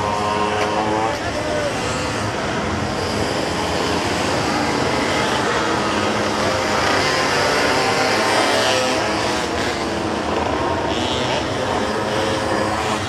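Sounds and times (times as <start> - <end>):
pocket bike engines whining: 0.0 - 13.0.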